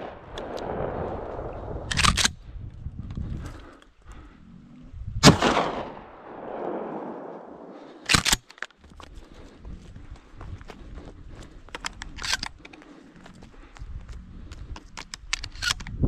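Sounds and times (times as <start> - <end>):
sharp cracks: 0.0 - 2.4, 5.2 - 8.8
shotgun shot echoing: 5.2 - 8.0.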